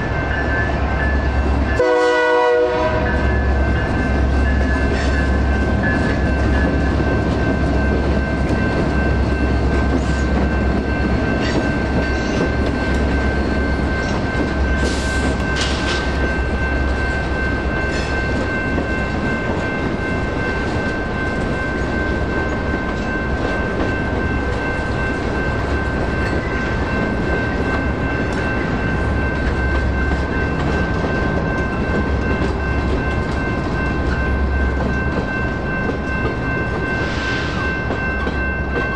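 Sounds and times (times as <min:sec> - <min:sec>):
crossing warning bell: 0:00.0 - 0:38.9
freight train wheels on rails: 0:00.0 - 0:38.9.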